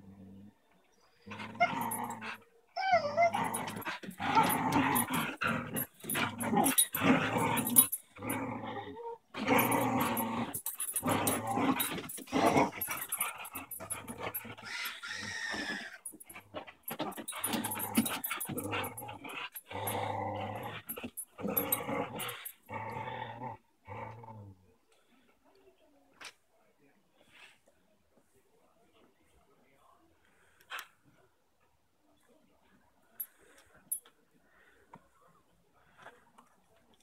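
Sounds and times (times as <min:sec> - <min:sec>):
dogs growling in play: 0:00.0 - 0:25.2.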